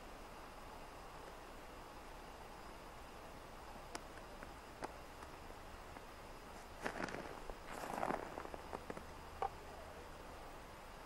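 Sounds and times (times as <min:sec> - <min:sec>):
footsteps crunching on snow: 0:06.6 - 0:09.1.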